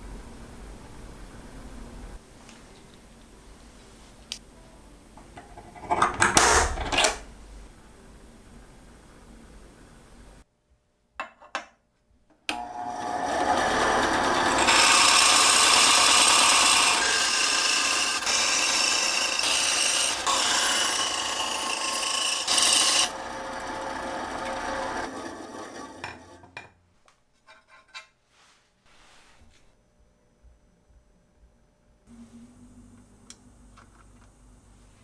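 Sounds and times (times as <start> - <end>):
bandsaw running: 12.6 - 26.5
bandsaw blade rasping: 13.2 - 26.4.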